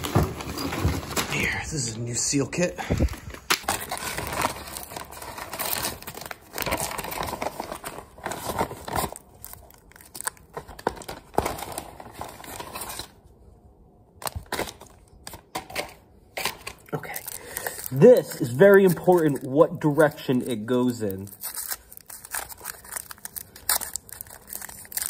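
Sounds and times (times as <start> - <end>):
paper packaging tearing and crumpling: 2.9 - 13.2, 16.4 - 25.0.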